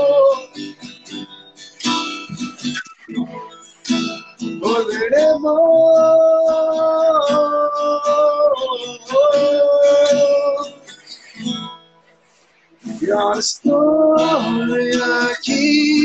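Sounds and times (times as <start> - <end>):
person singing long notes: 0.0 - 0.6, 4.6 - 10.8, 12.9 - 16.0
acoustic guitar strumming: 0.0 - 16.0.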